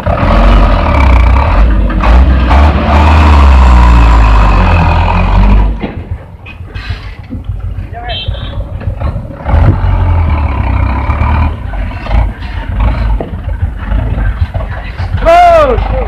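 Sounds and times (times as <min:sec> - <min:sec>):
diesel truck engine pulling hard: 0:00.0 - 0:16.0.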